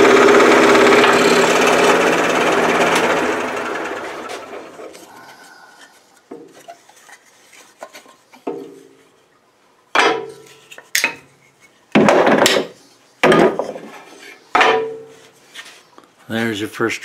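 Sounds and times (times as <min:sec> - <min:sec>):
wooden pieces knocking together: 0:11.9 - 0:13.9.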